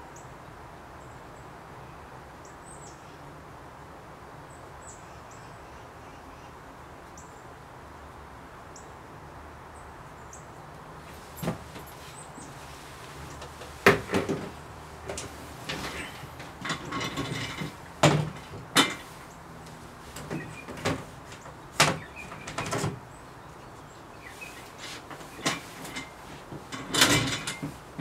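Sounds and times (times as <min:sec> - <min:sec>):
hard objects knocking and clattering: 0:13.4 - 0:19.2, 0:20.2 - 0:23.0, 0:25.1 - 0:28.0.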